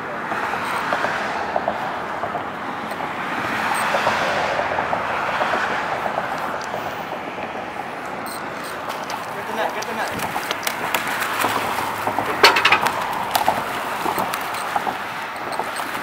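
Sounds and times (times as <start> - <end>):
road traffic tyre noise: 0.0 - 16.0.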